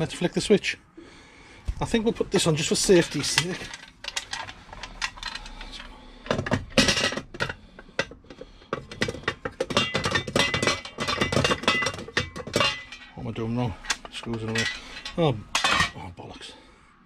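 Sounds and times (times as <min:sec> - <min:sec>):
plastic cover clicking and rattling: 0:02.8 - 0:13.0.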